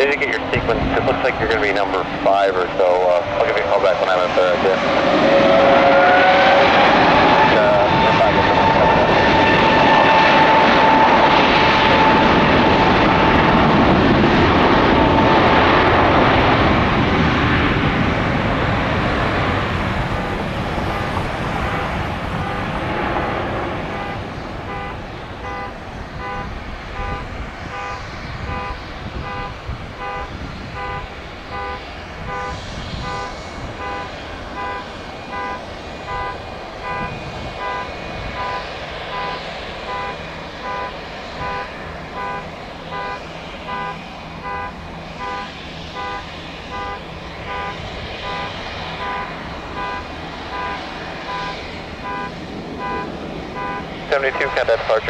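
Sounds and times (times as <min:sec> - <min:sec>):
electronic beep: 0:31.6 - 0:46.2, 0:46.8 - 0:54.6.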